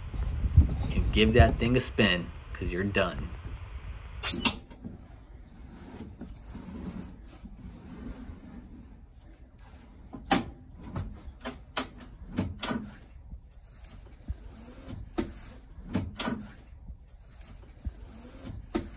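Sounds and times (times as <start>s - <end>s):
seat base clicking and clunking: 10.0s - 13.2s, 13.9s - 16.8s, 17.4s - 18.9s.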